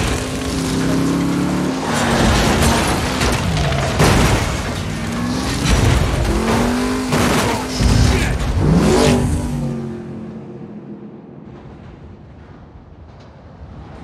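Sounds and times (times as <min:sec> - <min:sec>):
heavy crashes and booms: 0:00.0 - 0:09.9
sports car engine revving: 0:05.0 - 0:10.5.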